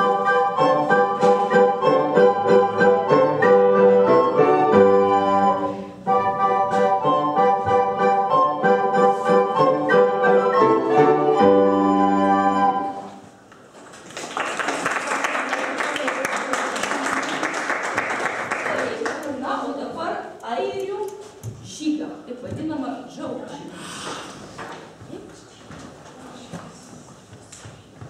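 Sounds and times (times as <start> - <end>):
recorder ensemble with piano: 0.0 - 13.5
applause: 14.0 - 19.3.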